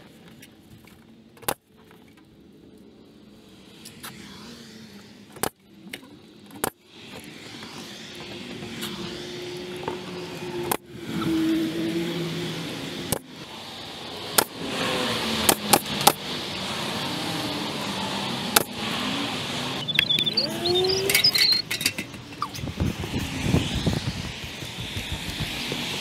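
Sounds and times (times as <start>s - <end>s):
pneumatic nail gun shots: 15.4s - 16.3s, 18.5s - 19.0s.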